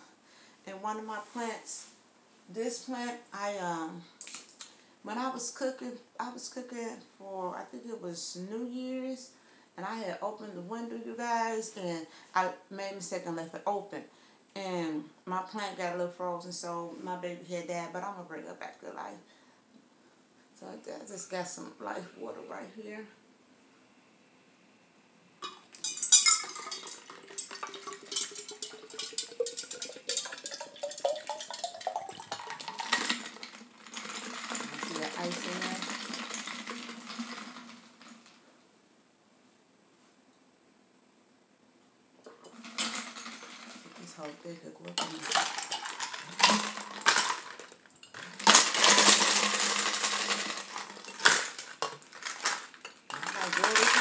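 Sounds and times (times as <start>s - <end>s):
bottle clinking against tumbler: 25.4s - 33.6s
water pouring into metal tumbler: 25.8s - 38.4s, 42.4s - 44.3s, 45.0s - 54.0s.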